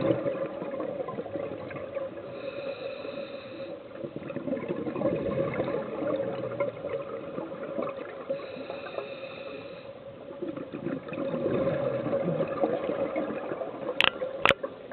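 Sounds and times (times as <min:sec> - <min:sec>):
underwater air bubbling: 0:00.0 - 0:14.9.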